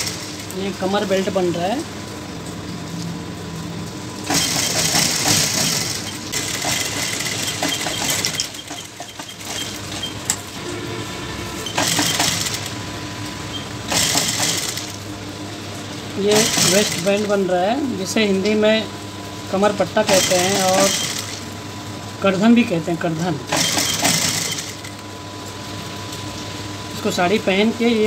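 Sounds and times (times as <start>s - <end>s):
sewing machine stitching: 0.0s - 0.4s, 4.2s - 10.4s, 11.6s - 12.7s, 13.5s - 15.0s, 16.2s - 17.3s, 20.0s - 21.4s, 23.5s - 25.0s
steady motor hum: 0.0s - 28.0s.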